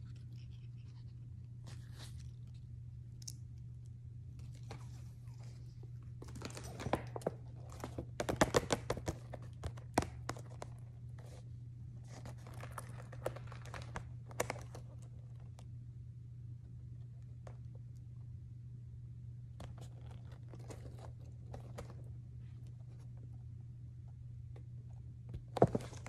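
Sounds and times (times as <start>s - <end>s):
plastic packaging crinkling: 12.1s - 15.0s.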